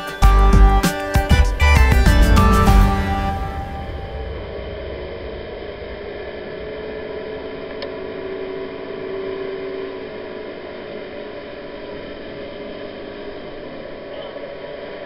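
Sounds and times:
boat engine running: 0.3s - 15.0s.

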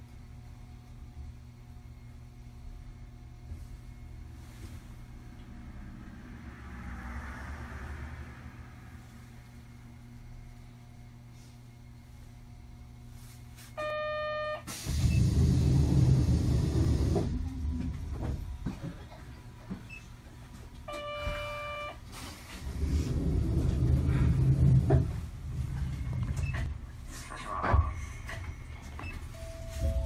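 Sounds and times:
tram rumbling: 3.7s - 10.9s, 14.7s - 21.4s, 22.0s - 30.0s.

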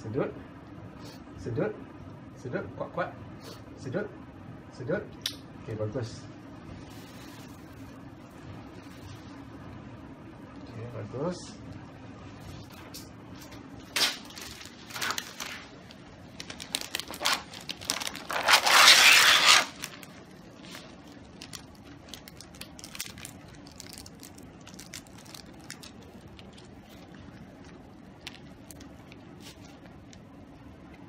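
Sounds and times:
plastic packaging crinkling and tearing: 13.8s - 30.2s.

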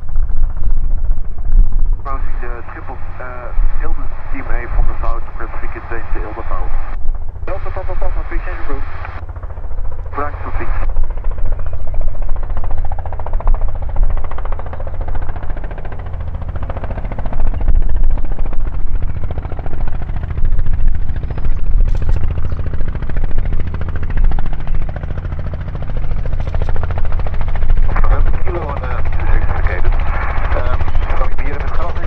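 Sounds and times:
helicopter rotor chop: 0.0s - 32.0s
piston engine drone: 0.0s - 32.0s.

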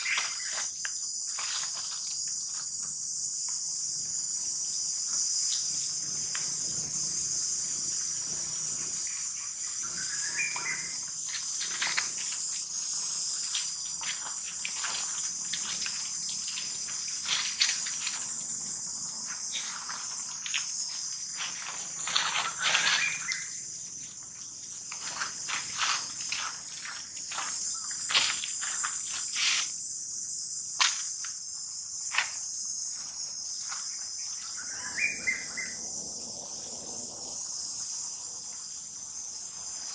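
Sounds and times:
insects chorus: 0.0s - 39.9s.

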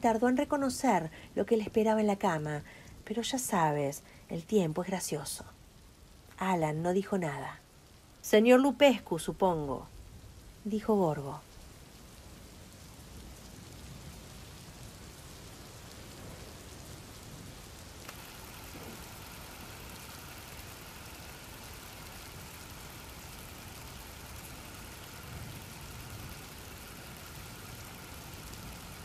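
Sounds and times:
rain-like hiss: 0.0s - 29.0s
faint high whine: 18.0s - 29.0s.

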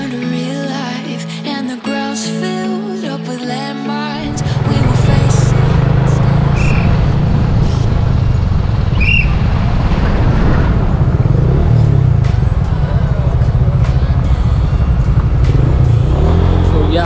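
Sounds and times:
motorcycle engines rumbling: 4.2s - 17.0s.

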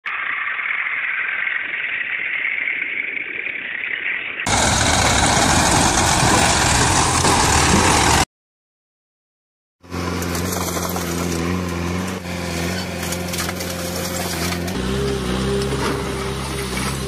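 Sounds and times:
tractor diesel engine running: 4.5s - 8.2s, 9.8s - 17.0s.

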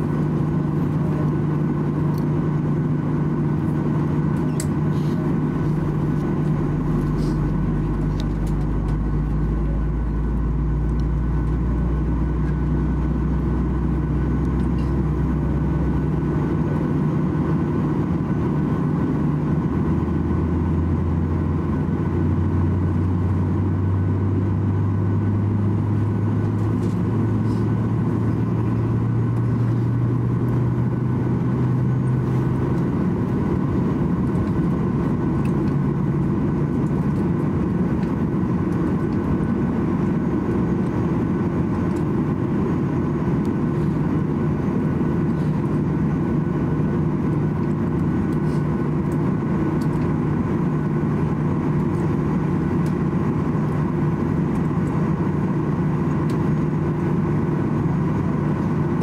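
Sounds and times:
low engine drone: 0.0s - 59.0s.

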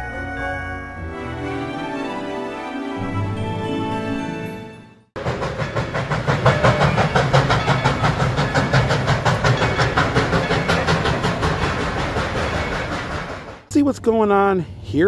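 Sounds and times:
steam locomotive chuffing: 5.2s - 13.7s.

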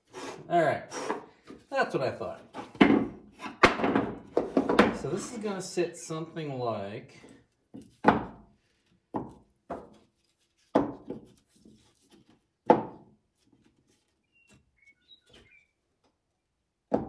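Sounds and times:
wooden planks knocking: 2.5s - 5.3s, 7.7s - 8.4s.

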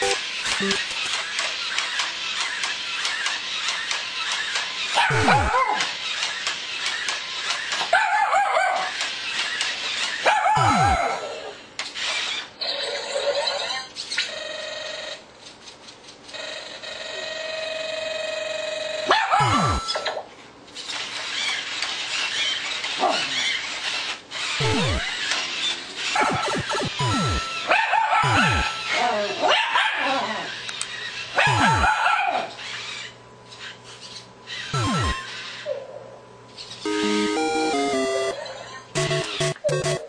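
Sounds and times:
electronic robot pitch sweeps: 0.0s - 0.8s, 5.1s - 5.6s, 10.6s - 11.0s, 19.4s - 20.0s, 24.6s - 25.2s, 26.2s - 28.9s, 31.5s - 31.9s, 34.8s - 35.3s, 39.0s - 40.0s
held beeping tone: 0.0s - 0.8s, 10.6s - 11.0s, 19.4s - 19.9s, 24.6s - 25.1s, 26.2s - 27.6s, 28.2s - 28.8s, 31.5s - 31.8s, 34.8s - 35.2s, 36.9s - 38.4s, 39.0s - 40.0s
puppy barking: 5.0s - 5.8s, 7.9s - 8.9s, 10.2s - 11.2s, 19.1s - 19.8s, 23.0s - 23.4s, 29.4s - 30.4s, 31.4s - 32.5s.

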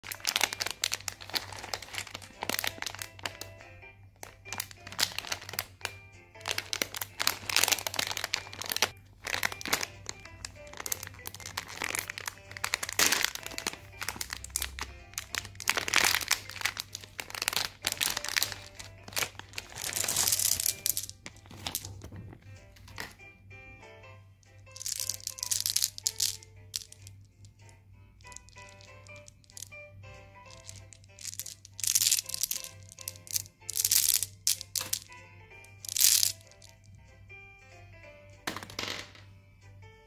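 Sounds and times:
foil snack pouch crinkling: 0.0s - 3.5s, 4.2s - 22.0s, 24.8s - 27.1s, 28.2s - 29.8s, 30.5s - 35.1s, 35.8s - 36.8s
background music: 0.0s - 40.0s.

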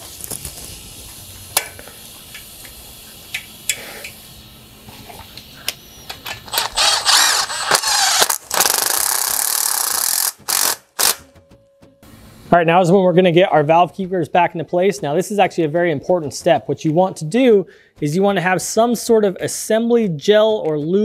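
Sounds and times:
impact driver running: 6.5s - 11.2s.

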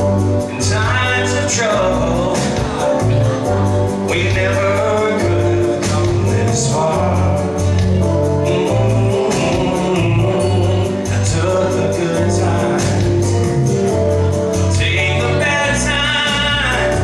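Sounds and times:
backing track with beat and bass: 0.0s - 17.0s
man singing into microphone: 0.0s - 17.0s.

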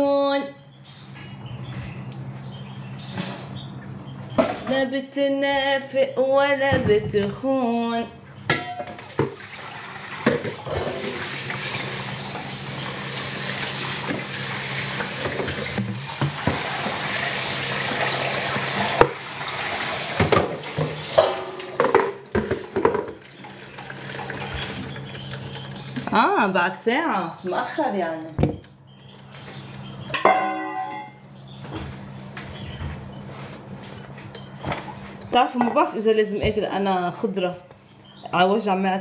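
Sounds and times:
dishes and pans clattering: 8.4s - 9.5s, 10.2s - 11.2s, 20.2s - 23.2s, 30.0s - 31.2s
tap water running into sink: 9.1s - 22.0s, 22.6s - 26.0s.

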